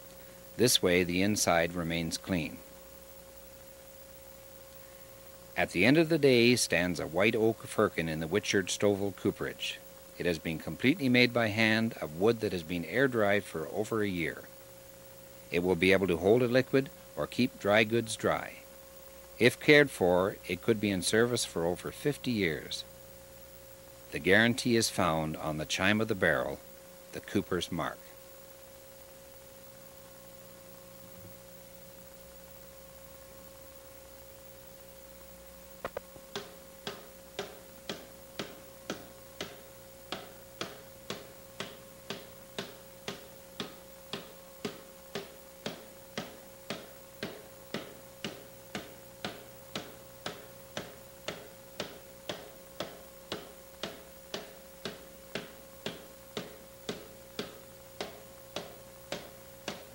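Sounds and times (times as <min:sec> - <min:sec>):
faint steady hum: 0:00.0 - 0:59.9
regular sharp ticking: 0:35.8 - 0:59.9.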